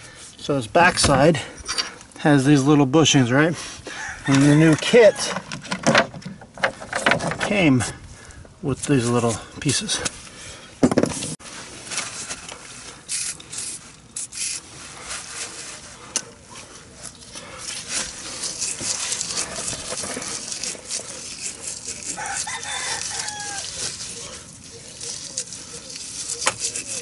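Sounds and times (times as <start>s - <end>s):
rooster crowing: 3.9s - 5.3s, 22.1s - 23.8s
steel wool scrubbing metal: 17.6s - 27.0s.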